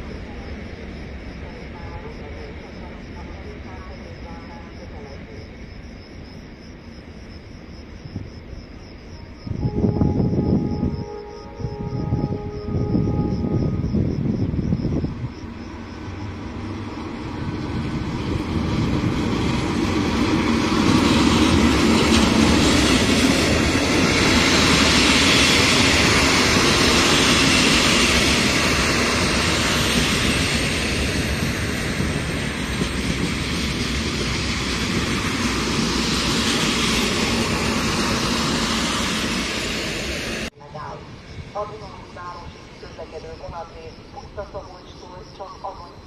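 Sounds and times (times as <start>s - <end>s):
train wheels rumbling on rails: 8.0s - 44.5s.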